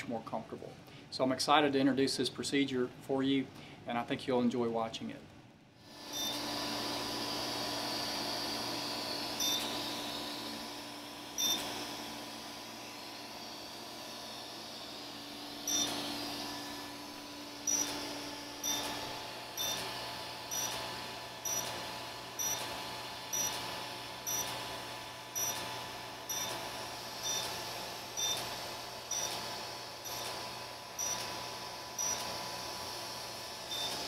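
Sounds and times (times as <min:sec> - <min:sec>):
steady machine hum: 0:05.3 - 0:34.0
laser short high beeps: 0:06.2 - 0:06.4, 0:09.4 - 0:09.7, 0:11.4 - 0:11.7, 0:15.7 - 0:16.0, 0:17.7 - 0:18.0, 0:18.6 - 0:19.0, 0:19.6 - 0:19.8, 0:20.5 - 0:20.8, 0:21.5 - 0:21.7, 0:22.4 - 0:22.6, 0:23.3 - 0:23.6, 0:24.3 - 0:24.5, 0:25.4 - 0:25.6, 0:26.3 - 0:26.5, 0:27.2 - 0:27.5, 0:28.2 - 0:28.4, 0:29.1 - 0:29.4, 0:31.0 - 0:31.2, 0:32.0 - 0:32.2, 0:33.7 - 0:34.0.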